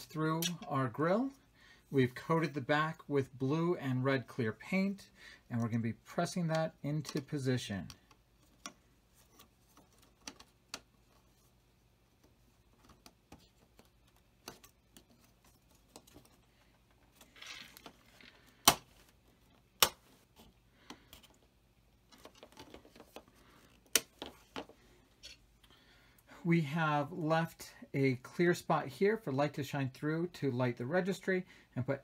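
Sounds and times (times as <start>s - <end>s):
plastic parts clicking and tapping: 6.5s - 11.2s.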